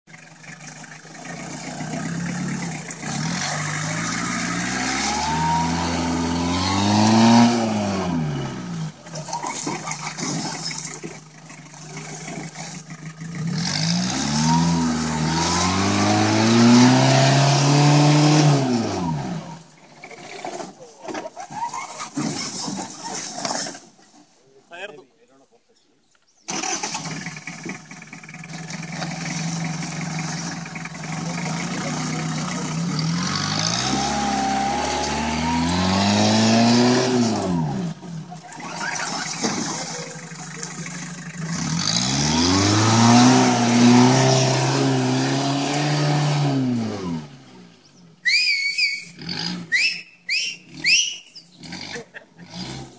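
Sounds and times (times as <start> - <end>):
jeep engine revving: 0.1 - 23.8, 26.5 - 52.9
high rising whistle-like calls: 48.2 - 51.6.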